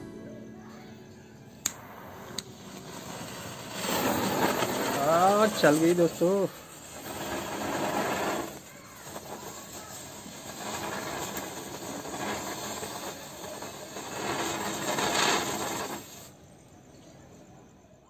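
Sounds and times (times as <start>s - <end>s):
ground spinner firework hissing: 1.4s - 16.7s.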